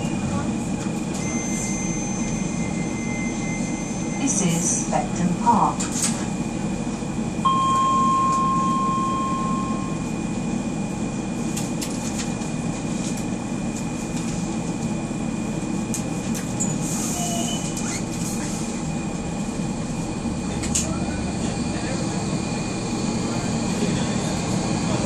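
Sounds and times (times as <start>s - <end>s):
train equipment humming: 0.0s - 25.0s
steady tone: 7.4s - 10.5s.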